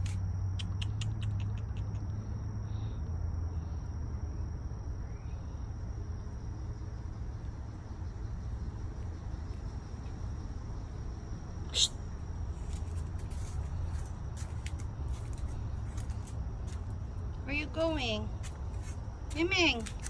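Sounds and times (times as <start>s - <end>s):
crickets trilling: 0.0s - 20.0s
low steady hum: 0.0s - 20.0s
quick chirping clicks: 0.6s - 2.2s.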